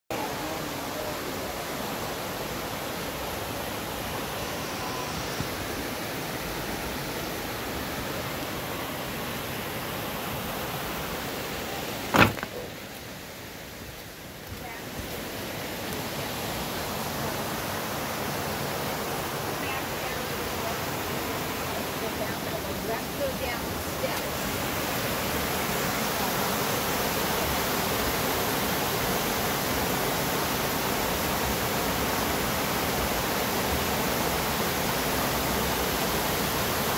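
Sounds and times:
stream rushing over rocks: 0.1 - 36.9
loud thump: 12.1 - 12.7.

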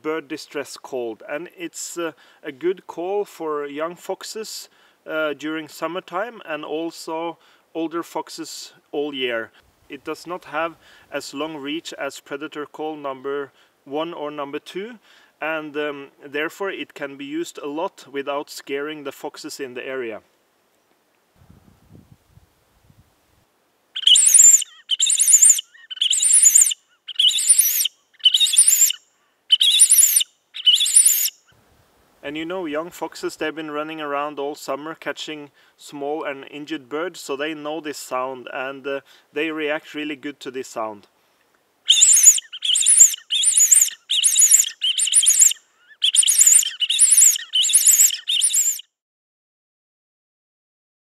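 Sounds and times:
high-pitched wavering bird call squeals: 24.0 - 31.5, 41.9 - 48.9.

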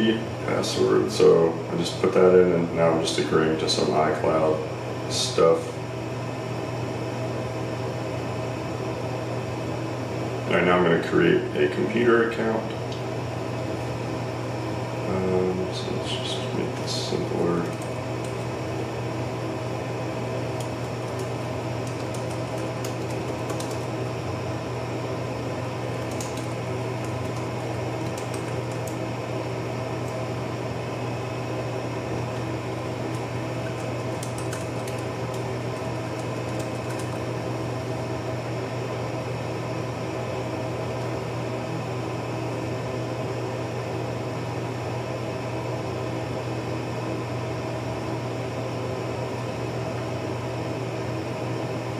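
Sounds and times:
mechanical hum: 0.0 - 51.9
typing on laptop keyboard: 20.6 - 23.9, 26.0 - 29.0, 33.6 - 37.2.

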